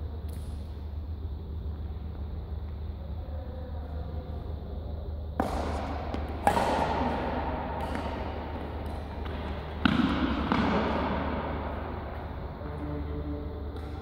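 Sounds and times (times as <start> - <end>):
steady low hum: 0.0 - 14.0
rackets hitting shuttlecock: 5.4 - 14.0.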